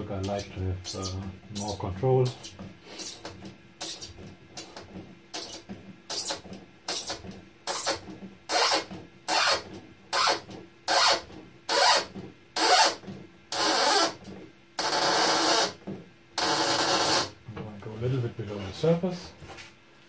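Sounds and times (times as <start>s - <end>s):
screw grinding and squeaking in foam: 0.2s - 14.2s, 14.8s - 15.8s, 16.4s - 17.3s.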